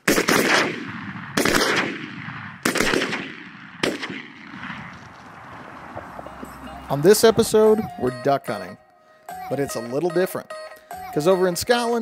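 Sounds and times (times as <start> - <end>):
shotgun shots echoing: 0.0 - 6.0.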